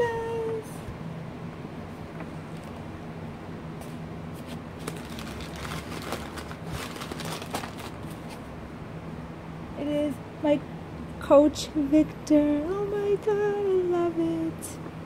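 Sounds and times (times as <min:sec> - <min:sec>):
steady low hum: 0:00.0 - 0:15.0
packaging rustling and crinkling: 0:04.4 - 0:08.4.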